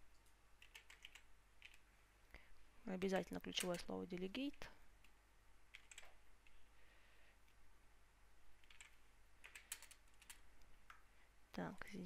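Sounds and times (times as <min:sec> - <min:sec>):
computer keyboard keystrokes: 0:00.6 - 0:01.8, 0:05.7 - 0:06.2, 0:08.6 - 0:10.4.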